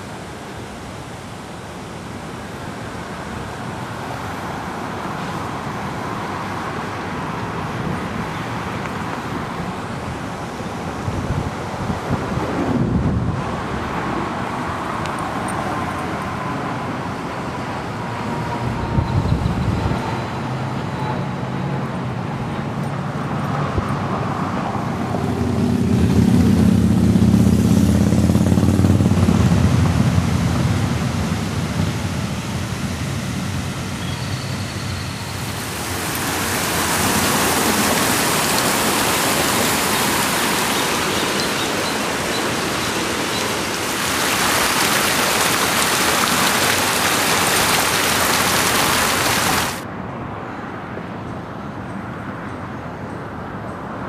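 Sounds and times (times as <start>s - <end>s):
street traffic: 0.0s - 54.0s
steady rushing noise: 24.2s - 50.0s.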